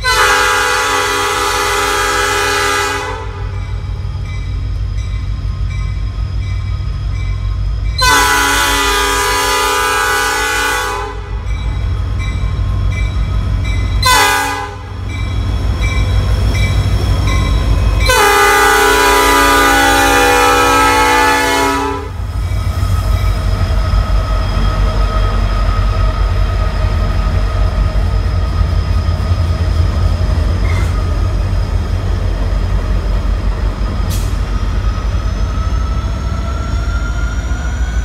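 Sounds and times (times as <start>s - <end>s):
train air horn blasts: 0.0s - 3.6s, 8.0s - 11.4s, 14.0s - 15.0s, 18.0s - 22.2s
diesel locomotive engine rumble: 0.0s - 38.0s.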